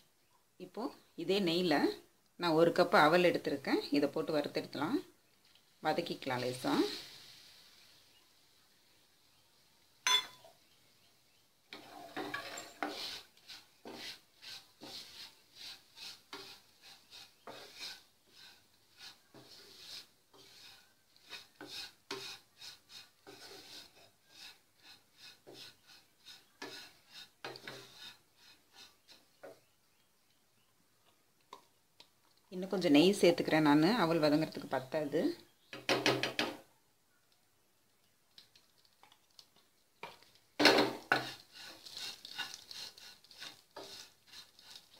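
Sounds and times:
wooden spatula scraping frying pan: 11.7 - 29.8, 40.0 - 44.9.

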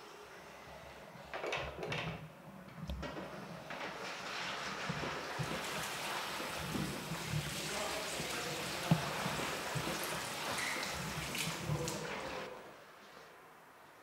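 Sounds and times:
hands scrubbing wet cloth: 4.0 - 12.5
water running into washbasin: 4.0 - 12.6.

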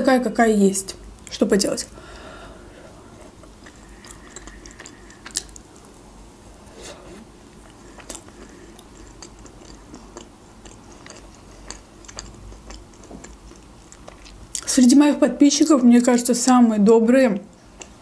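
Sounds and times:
person chewing cake: 2.6 - 6.0, 6.6 - 14.8, 17.5 - 18.0.

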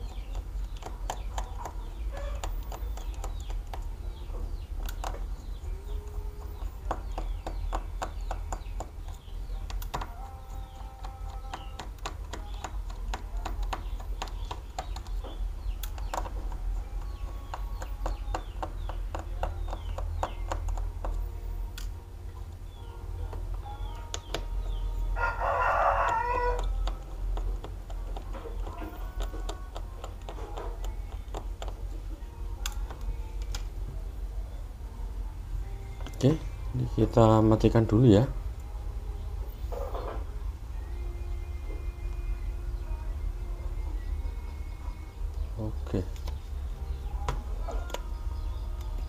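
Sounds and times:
bird calls: 0.0 - 20.9
low steady hum: 0.0 - 49.0
tool clicks and taps: 10.8 - 16.6, 17.5 - 21.2, 26.1 - 31.8.

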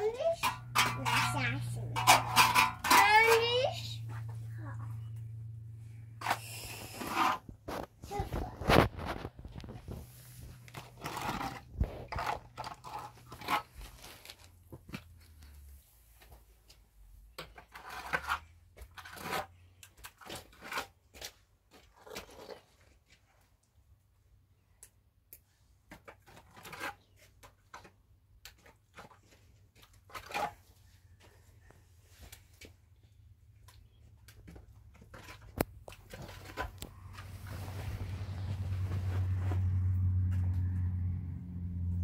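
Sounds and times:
wet plaster scraping on wall: 6.2 - 14.5, 17.3 - 23.0, 25.9 - 30.9.

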